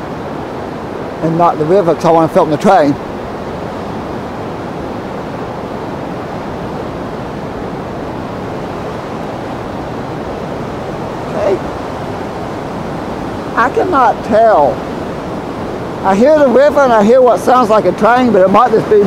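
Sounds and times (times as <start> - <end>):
river rushing: 0.0 - 19.0.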